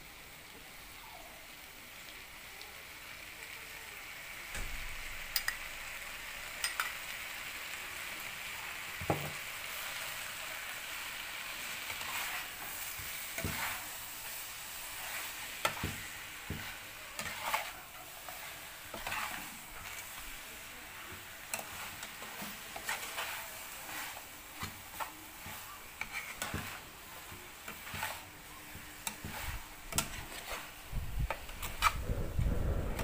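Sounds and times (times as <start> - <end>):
hot oil sizzling: 0.0 - 33.0
metal spatula scraping a pan: 9.6 - 32.1
low rumble: 32.0 - 33.0.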